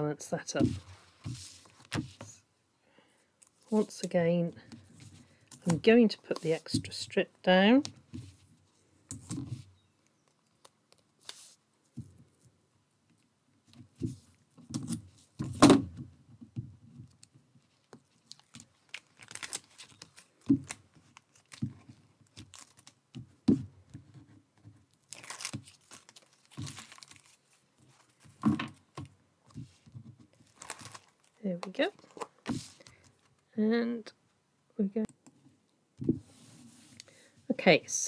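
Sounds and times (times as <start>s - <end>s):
card and paper handling: 9.2s - 11.6s, 17.8s - 23.0s, 24.9s - 33.4s.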